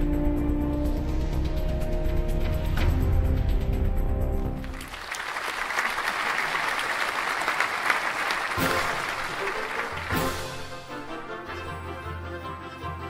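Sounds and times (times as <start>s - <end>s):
audience applauding: 4.6s - 10.9s.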